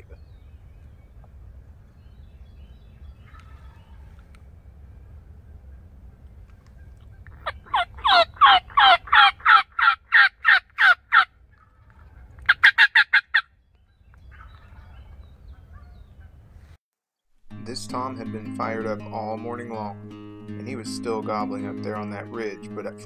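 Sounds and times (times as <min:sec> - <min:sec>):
turkey call yelps: 0:03.2 - 0:04.2, 0:06.7 - 0:13.5, 0:14.3 - 0:16.4.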